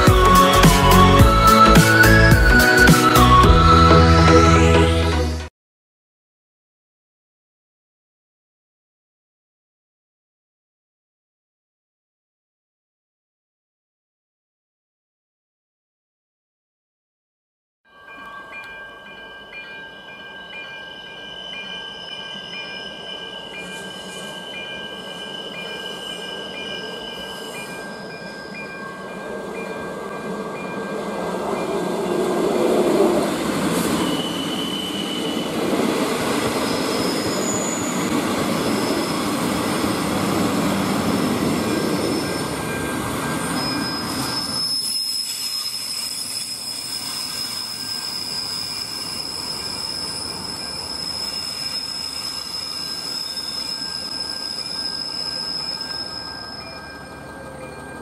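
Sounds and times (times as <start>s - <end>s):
diesel railcar engines: 0.0s - 5.5s, 18.1s - 58.0s
level crossing warning bell: 17.9s - 38.1s, 38.7s - 44.5s, 50.0s - 58.0s
wheels rumbling on rails: 20.8s - 58.0s
high-pitched wheel squeal: 21.0s - 29.4s, 30.2s - 58.0s.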